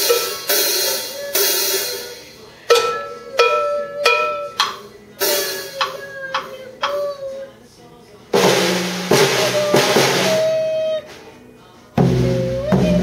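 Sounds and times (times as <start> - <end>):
ringing drum strokes: 0.0 - 7.4, 8.4 - 11.0.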